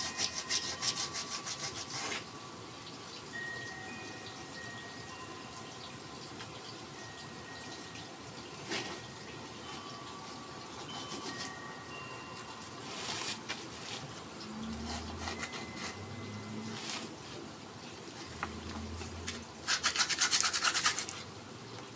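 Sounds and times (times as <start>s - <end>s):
sandpaper rubbing on wood: 0.0s - 2.2s, 19.6s - 21.2s
faint chime-like ringing: 0.0s - 13.5s, 14.4s - 17.1s.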